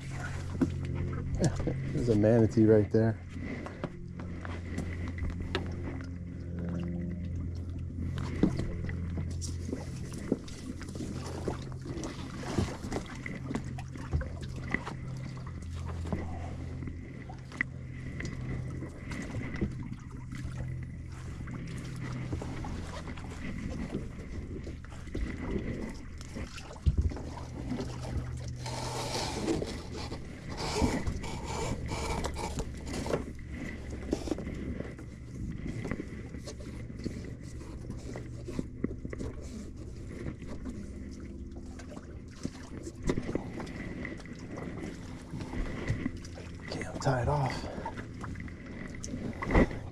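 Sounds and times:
low steady hum: 0.0 - 49.9.

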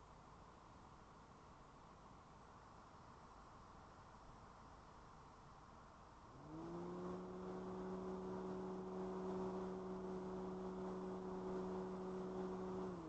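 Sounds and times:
motor hum: 6.3 - 13.0.

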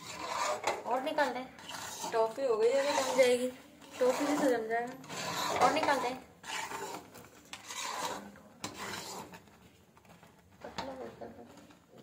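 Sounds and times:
spoon scraping a pan: 0.0 - 9.5.

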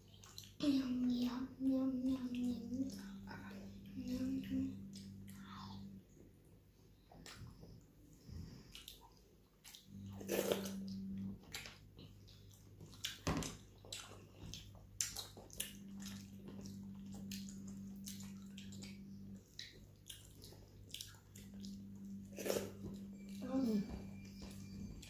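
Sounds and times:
low steady hum: 0.0 - 25.0
wet chewing smacks: 8.6 - 23.0.

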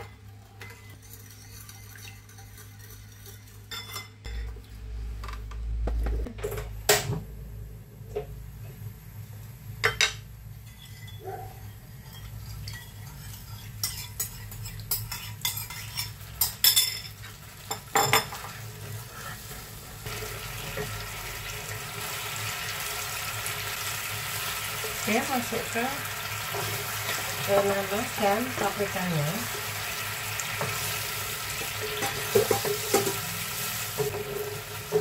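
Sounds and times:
sauce sizzling in a pan: 12.0 - 35.0.

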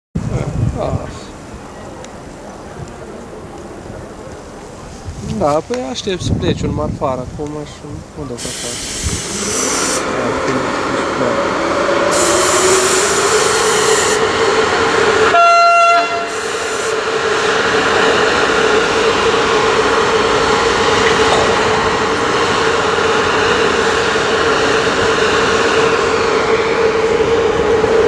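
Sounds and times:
freight train rolling past: 0.2 - 28.0
train horn blast: 12.1 - 14.3, 15.2 - 16.9.

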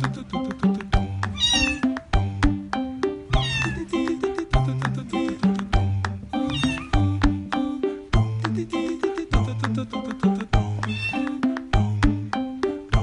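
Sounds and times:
upbeat instrumental music: 0.0 - 13.0
cat meowing: 1.4 - 1.9, 3.3 - 3.8, 6.5 - 7.0, 10.8 - 11.3.

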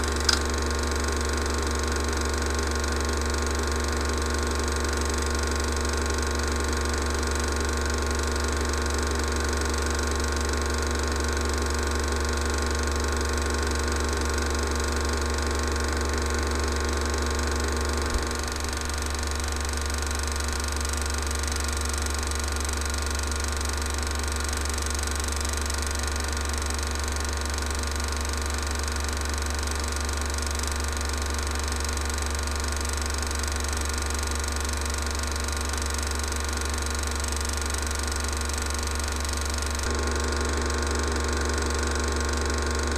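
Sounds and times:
projector click: 0.0 - 0.6
film projector running: 0.0 - 42.9.

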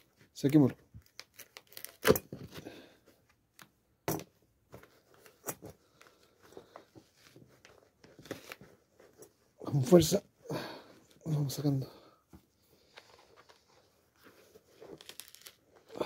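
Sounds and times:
sneaker heel crackling and tearing: 1.0 - 2.5, 14.6 - 16.0.

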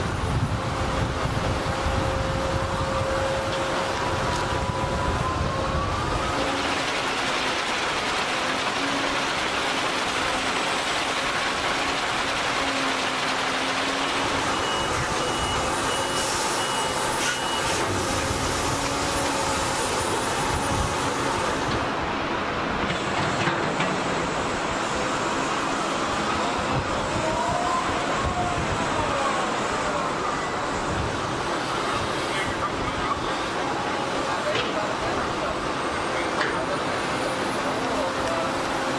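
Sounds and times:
rising hydraulic whine: 0.0 - 7.6, 11.6 - 22.1
material handler engine: 0.0 - 38.9
warning beeper: 14.4 - 17.9.

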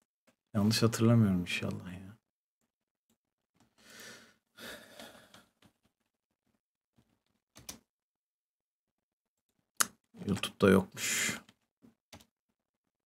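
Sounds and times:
faint breaths: 3.8 - 5.6.

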